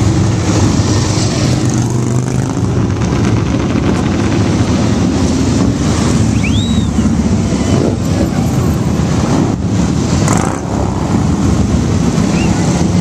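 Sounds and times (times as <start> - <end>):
motorcycle engines passing: 0.0 - 13.0
high whistle: 6.3 - 7.1, 12.3 - 12.6.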